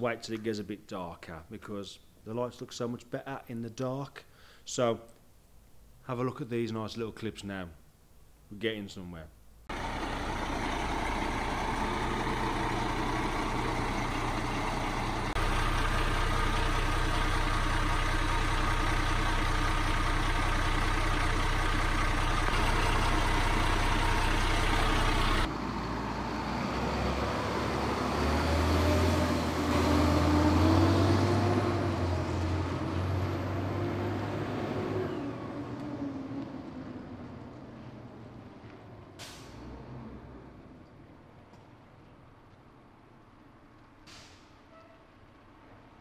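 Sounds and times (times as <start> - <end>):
diesel engine idling: 9.7 - 34.4
engine revving: 9.7 - 37.0.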